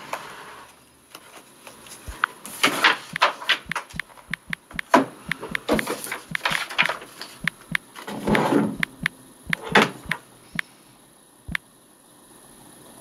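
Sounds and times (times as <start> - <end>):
touchscreen taps: 3.2 - 6.6, 7.4 - 7.8, 8.8 - 10.2.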